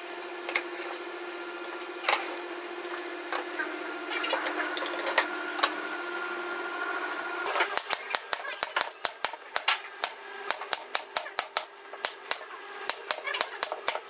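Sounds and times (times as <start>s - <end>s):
steady machine hum: 0.0s - 14.0s.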